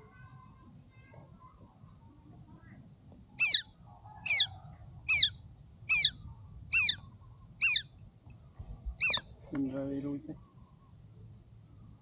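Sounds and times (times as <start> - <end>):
bird high-pitched downward calls: 3.4 - 4.5, 5.1 - 7.0, 7.6 - 7.9, 9.0 - 9.3.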